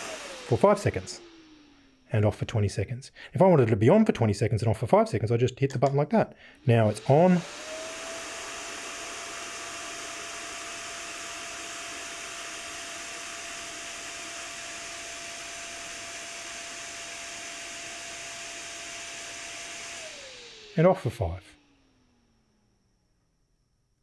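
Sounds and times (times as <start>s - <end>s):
electric fan running: 0.0s - 2.7s, 6.5s - 22.6s.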